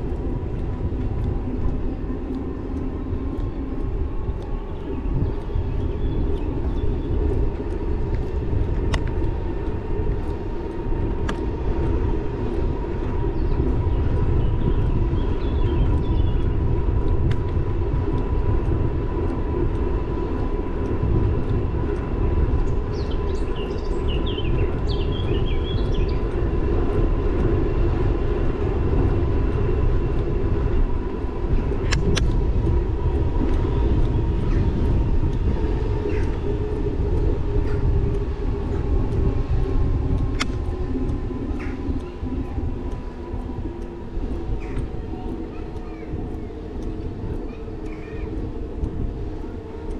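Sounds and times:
bicycle tyres rolling on asphalt: 0.0 - 49.9
thin steady whine: 0.0 - 49.9
wind on microphone: 0.0 - 49.9
bird chirping: 13.3 - 16.6, 22.6 - 26.4.

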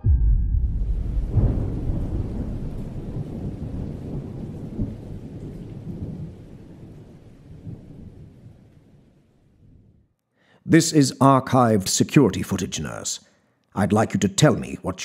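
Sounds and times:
deep rumble: 0.0 - 6.1.

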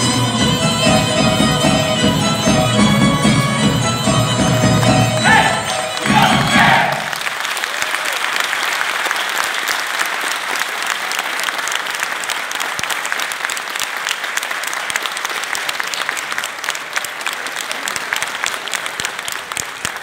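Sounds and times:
audience applauding: 5.1 - 20.0.

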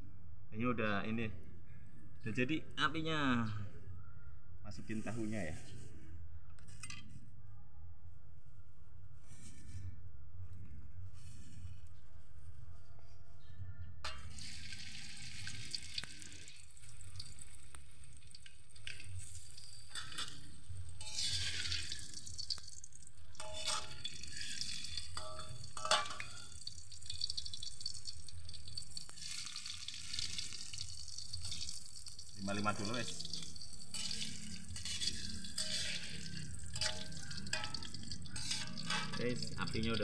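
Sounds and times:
oil sizzling in a wok: 14.1 - 40.0
spatula clinking on a wok: 18.3 - 22.6, 23.3 - 27.6, 33.2 - 39.5.

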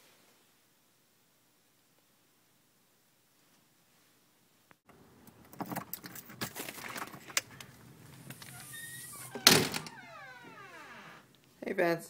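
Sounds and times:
door squeaking: 7.4 - 11.3
door thumping: 8.6 - 11.2.

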